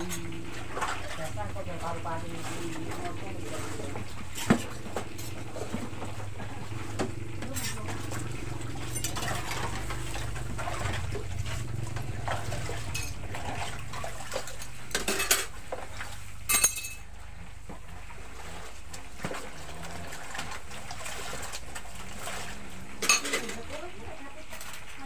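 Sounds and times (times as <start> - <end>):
steady low hum: 0.0 - 15.4
utensils clinking on wok and pots: 0.0 - 17.2, 22.9 - 24.9.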